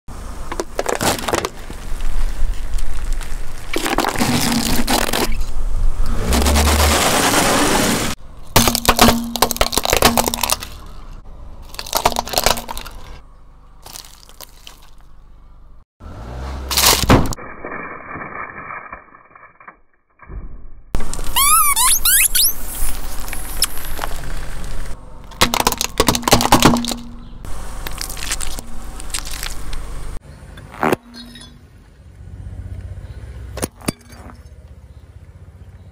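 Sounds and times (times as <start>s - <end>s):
hard plastic cracking: 8.6s - 10.8s, 11.7s - 13.0s
wet objects squishing: 27.8s - 30.0s.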